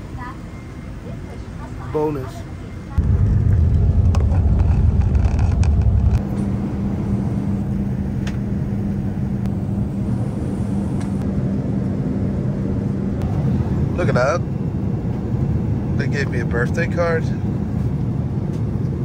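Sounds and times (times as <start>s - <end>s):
airplane cabin drone: 0.0s - 19.0s
jet plane rolling on runway: 0.0s - 19.0s.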